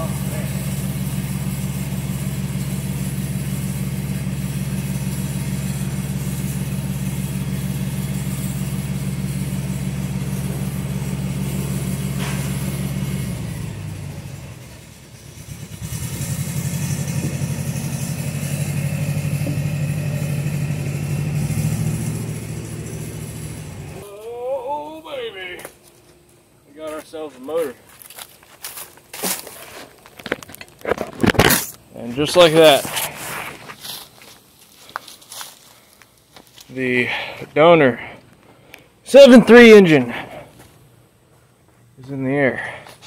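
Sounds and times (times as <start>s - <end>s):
vehicle engine idling: 0.0s - 24.1s.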